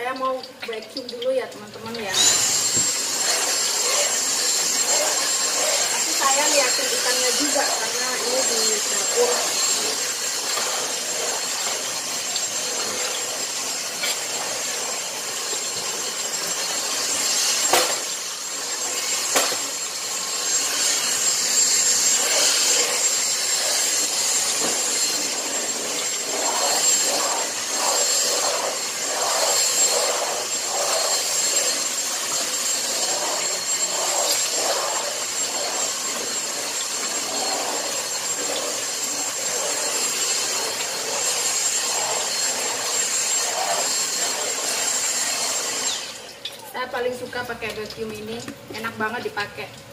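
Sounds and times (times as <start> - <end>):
vacuum cleaner whine: 1.8 - 47.1
vacuum head rubbing on floor: 2.2 - 11.9, 20.5 - 45.5.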